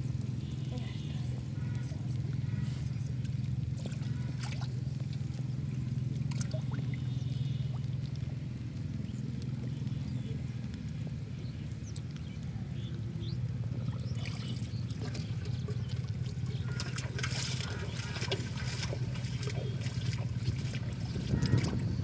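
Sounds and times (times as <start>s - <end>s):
steady low rumble: 0.0s - 22.0s
water sloshing and splashing: 0.0s - 22.0s.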